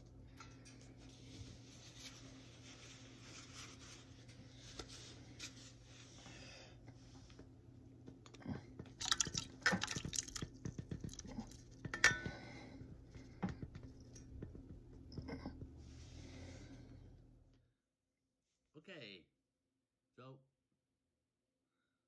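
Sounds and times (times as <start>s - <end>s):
pot clinking against pan: 11.9s - 12.4s.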